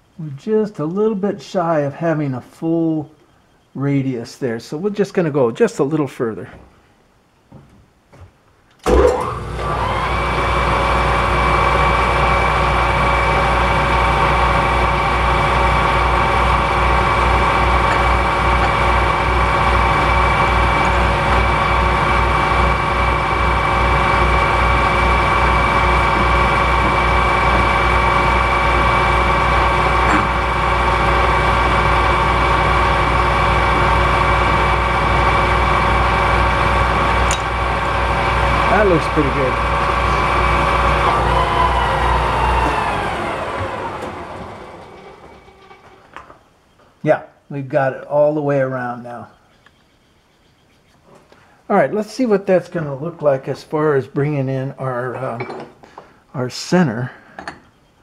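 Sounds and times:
metal lathe whining: 0:08.9 - 0:46.4.

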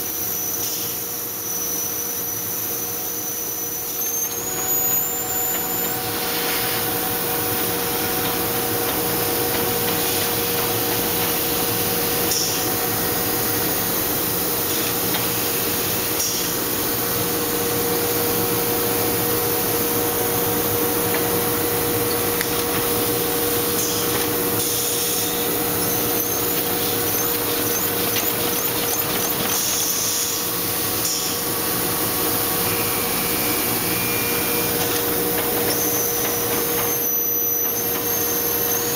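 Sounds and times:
machine hum: 0:02.5 - 0:38.7
machine clatter: 0:23.6 - 0:30.4, 0:34.7 - 0:38.3.

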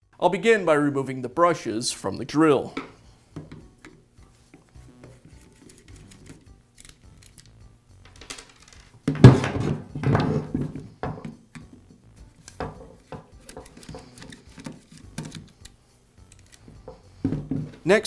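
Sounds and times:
screwdriver clicks and scrapes: 0:05.0 - 0:07.6, 0:12.4 - 0:16.8
tools clattering on a bench: 0:08.1 - 0:11.4.

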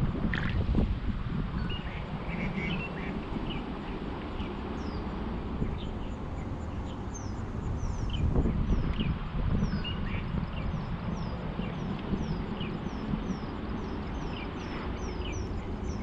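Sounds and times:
low rumble of wind on microphone: 0:00.0 - 0:16.0
birds chirping: 0:01.6 - 0:16.0.

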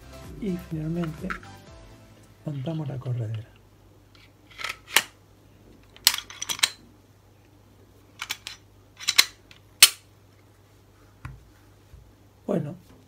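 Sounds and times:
pistol slide metallic clicks: 0:08.2 - 0:10.1.

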